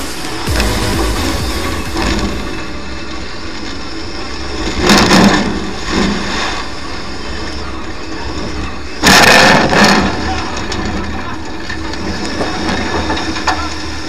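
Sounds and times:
loud rushing bursts: 0.0 - 4.8.

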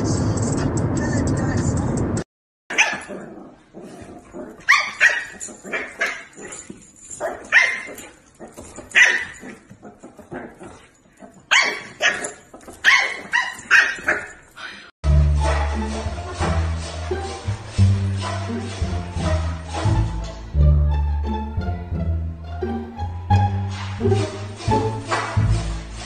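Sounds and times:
dogs barking: 2.7 - 14.5.

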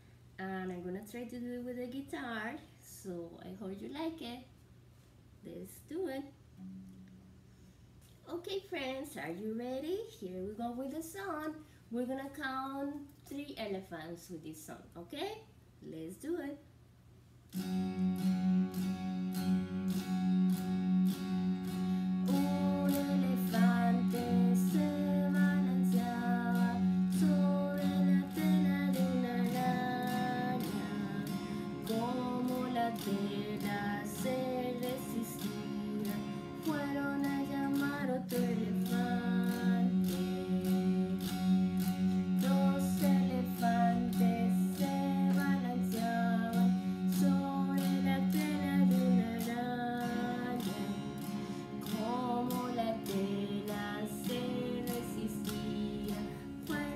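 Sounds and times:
strummed electric guitar: 17.5 - 56.9
woman singing: 21.9 - 56.9.

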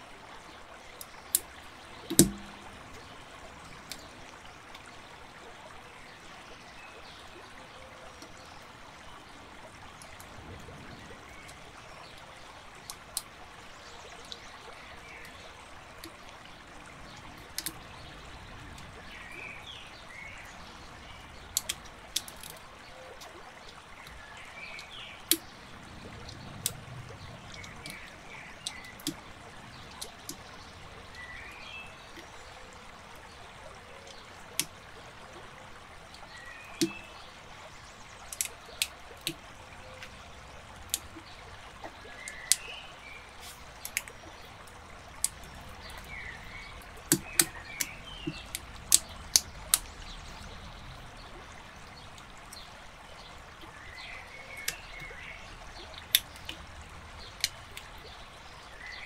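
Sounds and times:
steady hiss: 42.5 - 44.1.

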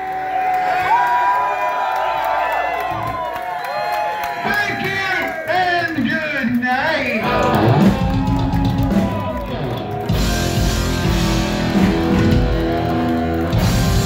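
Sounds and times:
drums: 5.9 - 14.0
distorted electric guitar: 7.1 - 14.0
heavy metal band playing live: 7.2 - 14.0.

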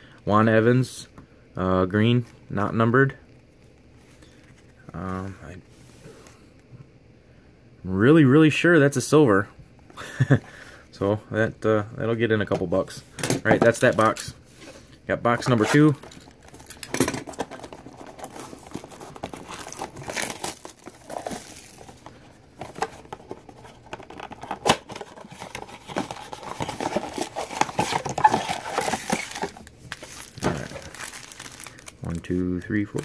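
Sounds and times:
card packs crinkling and rustling: 13.5 - 33.0
cardboard box tearing: 17.3 - 22.0, 24.6 - 31.6.

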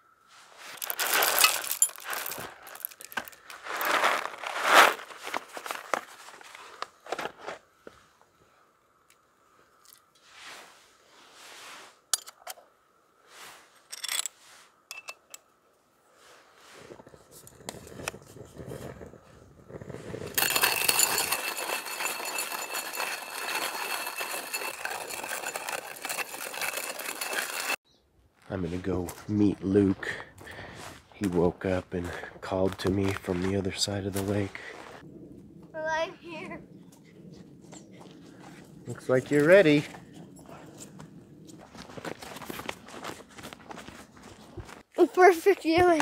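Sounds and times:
cooking gear clicks and scrapes: 0.7 - 4.3, 20.1 - 27.8
paper bag crinkling: 0.7 - 6.5.

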